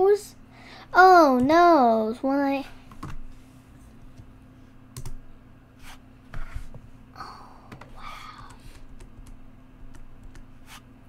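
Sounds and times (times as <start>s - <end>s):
computer keyboard keystrokes: 5.0s - 5.2s, 7.7s - 10.5s.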